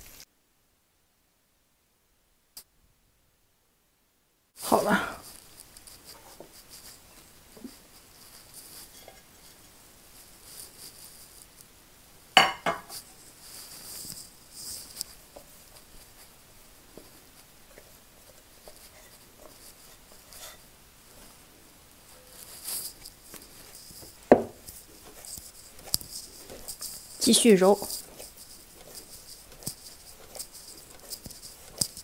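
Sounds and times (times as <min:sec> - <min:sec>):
dough squishing: 0:04.6 - 0:11.8, 0:12.9 - 0:32.0
clinks against glass bowl: 0:12.4 - 0:12.9
sharp knock: 0:12.4 - 0:12.9.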